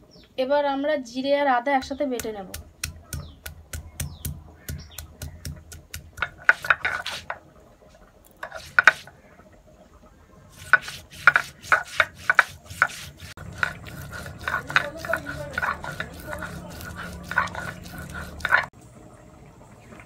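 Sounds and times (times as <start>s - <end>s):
stone roller knocking and scraping: 1.8s - 7.4s, 8.4s - 9.1s, 10.5s - 18.7s
stone roller tapping on stone: 1.8s - 7.4s, 8.4s - 9.1s, 10.6s - 18.7s.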